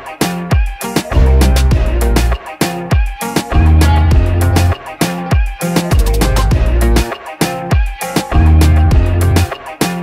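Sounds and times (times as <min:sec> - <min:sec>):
background music with steady beat: 0:00.0 - 0:10.0
deep bass line: 0:01.1 - 0:02.4, 0:03.5 - 0:04.9, 0:06.0 - 0:07.0, 0:08.4 - 0:09.5
kick drum: 0:02.9 - 0:04.7.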